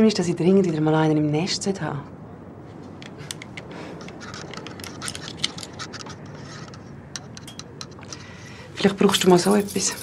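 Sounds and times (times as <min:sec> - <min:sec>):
rummaging clicks and rustles: 0:03.0 - 0:10.0.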